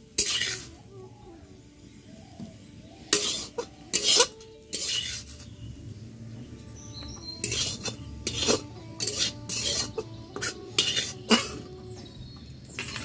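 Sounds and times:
metal spatula scraping in wok: 0.0 - 0.8, 3.0 - 5.7, 7.2 - 11.7, 12.7 - 13.0.

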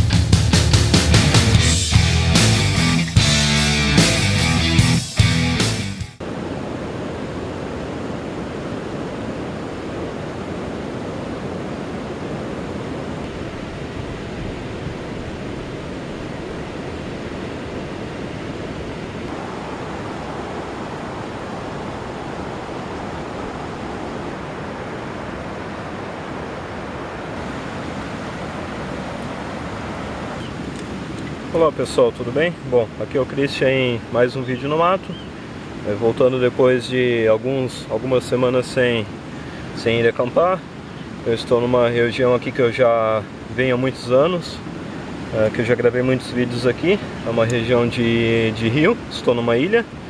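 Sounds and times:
wind through brush: 6.2 - 31.6
wind buffeting microphone: 6.2 - 31.8.

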